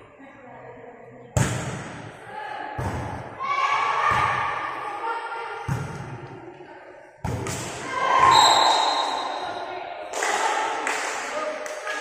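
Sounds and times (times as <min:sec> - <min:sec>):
high steady whistle tone: 0:08.3 - 0:09.5.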